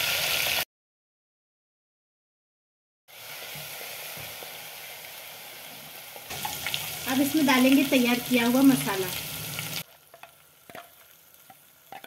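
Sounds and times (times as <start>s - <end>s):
spices sizzling in hot oil: 0.0s - 0.6s, 3.1s - 12.0s.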